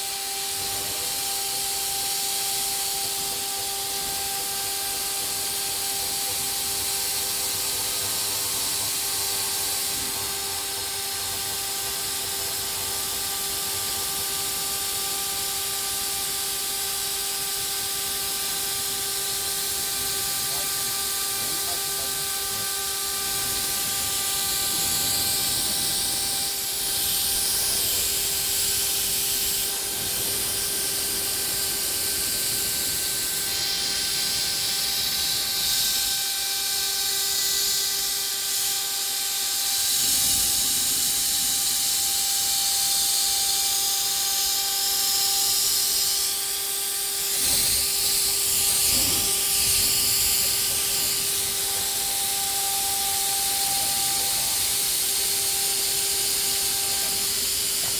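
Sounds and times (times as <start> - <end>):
router spindle whining: 0.0 - 57.9
hissing cutting noise: 18.4 - 57.9.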